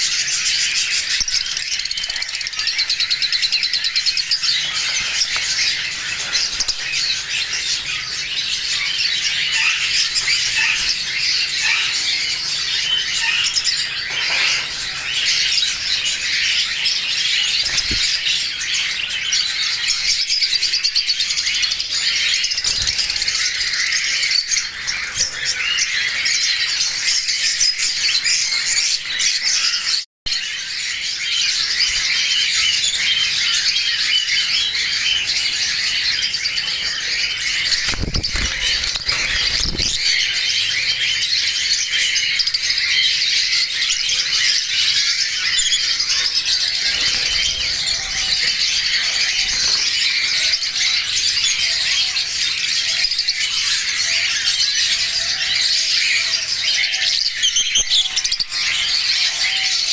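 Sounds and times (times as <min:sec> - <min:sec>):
lovebirds chattering and squawking: 0:00.0 - 0:59.9.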